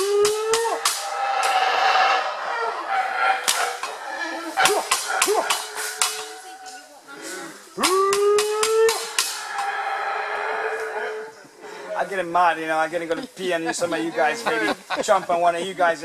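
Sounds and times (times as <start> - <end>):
howler monkeys roaring: 0.0 - 12.0.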